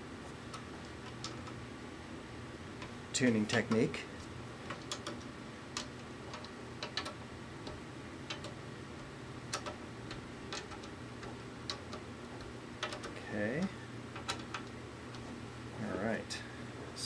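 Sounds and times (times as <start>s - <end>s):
low steady hum: 0.0s - 17.0s
tension hooks clicking: 2.8s - 13.3s, 14.1s - 15.3s.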